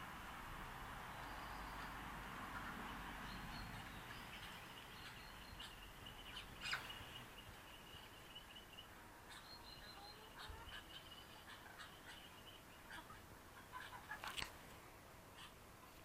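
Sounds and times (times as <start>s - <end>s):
high-pitched bird chirping: 4.9s - 12.6s.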